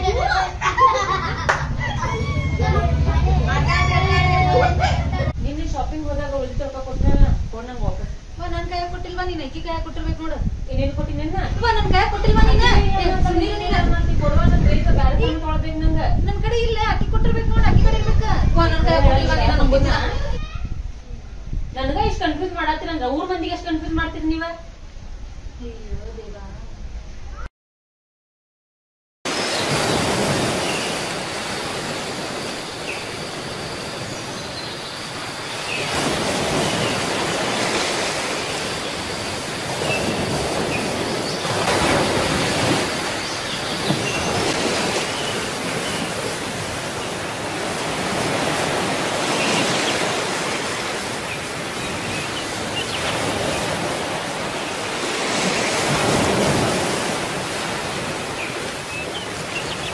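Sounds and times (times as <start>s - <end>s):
ocean surf washing onto beach: 29.3s - 59.9s.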